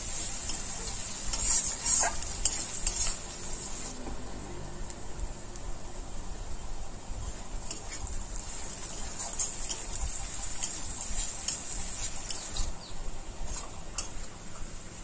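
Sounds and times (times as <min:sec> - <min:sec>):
metal spatula scraping: 0:00.0 - 0:04.1, 0:07.6 - 0:12.7
onions sizzling in hot oil: 0:00.0 - 0:04.1, 0:07.6 - 0:12.8.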